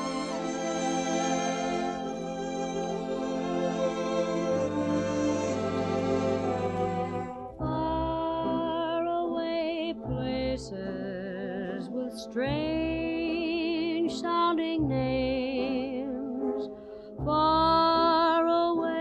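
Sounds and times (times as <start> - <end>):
instrumental music: 0.0 - 19.0
soft accompaniment: 0.0 - 19.0.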